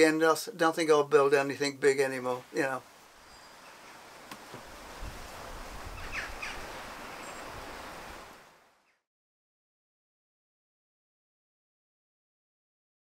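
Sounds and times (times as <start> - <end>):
bird chirps: 3.2 - 4.0, 6.0 - 7.6.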